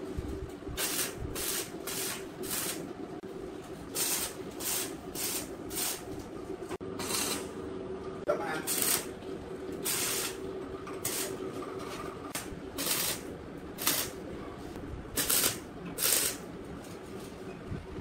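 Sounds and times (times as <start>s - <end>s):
steady low hum: 0.0s - 18.0s
welding arc bursts: 0.8s - 2.8s, 4.0s - 6.1s, 8.7s - 9.1s, 9.8s - 10.4s, 11.0s - 11.4s, 12.4s - 14.2s, 15.2s - 16.5s.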